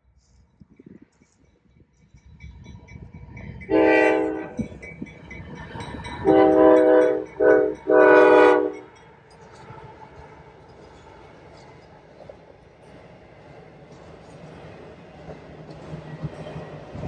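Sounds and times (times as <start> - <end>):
low rumble of train: 0.0 - 17.0
locomotive air horn: 3.7 - 4.6, 6.2 - 8.8.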